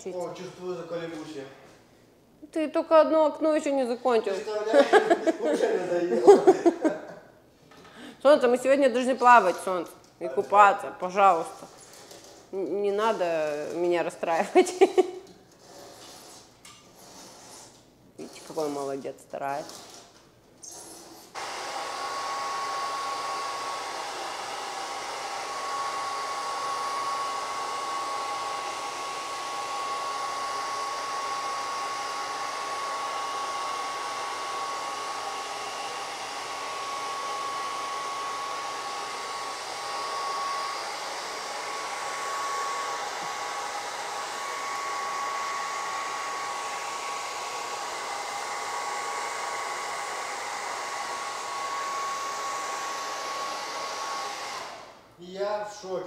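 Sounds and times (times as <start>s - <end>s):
hair dryer blowing: 4.0s - 7.0s, 8.0s - 9.9s, 10.5s - 15.3s, 21.2s - 55.1s.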